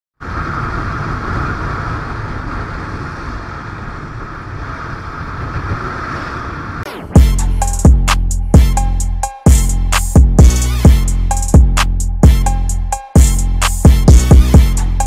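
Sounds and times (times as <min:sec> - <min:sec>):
wind rush over microphone: 0:00.2 - 0:06.9.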